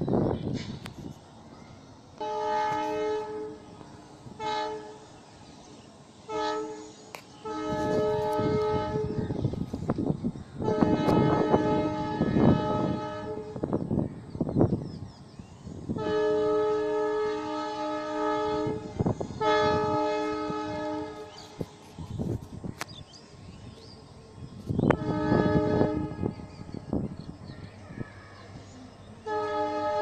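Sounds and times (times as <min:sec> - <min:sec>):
passing train rolling: 0:00.0 - 0:30.0
train horn blasts: 0:02.2 - 0:05.3, 0:06.2 - 0:09.6, 0:10.6 - 0:13.8, 0:15.9 - 0:21.8, 0:24.8 - 0:27.2, 0:29.2 - 0:30.0.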